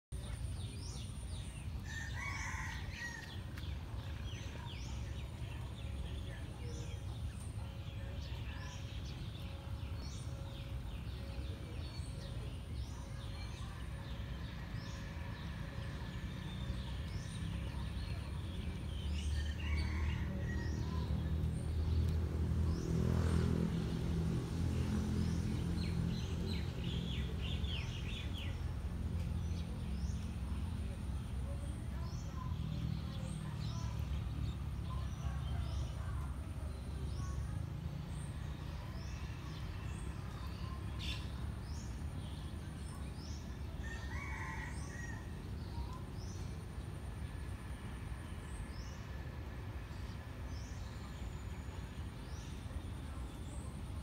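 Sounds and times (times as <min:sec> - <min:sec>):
small birds chirping: 0:00.0 - 0:24.2, 0:24.8 - 0:54.0.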